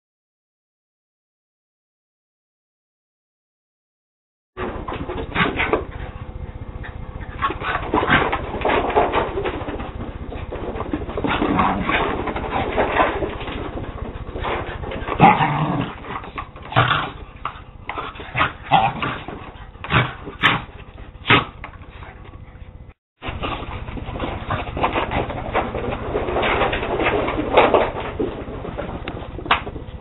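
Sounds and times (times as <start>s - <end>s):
dogs yipping and barking: 5.2s - 25.1s.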